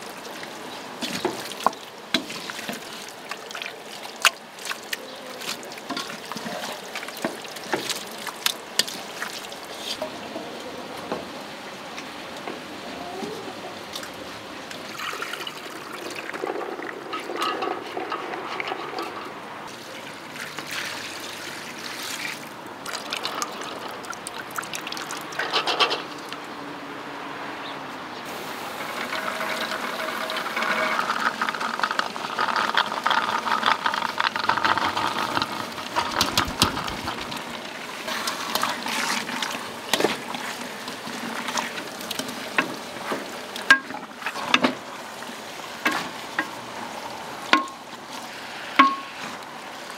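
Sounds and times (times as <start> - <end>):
wooden spoon stirring stew: 0.0 - 10.2, 15.8 - 19.5, 28.8 - 46.6.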